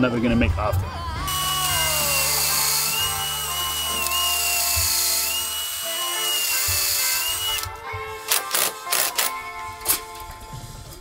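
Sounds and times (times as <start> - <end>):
background music: 0.0 - 11.0
cordless drill boring into wood: 1.3 - 9.4.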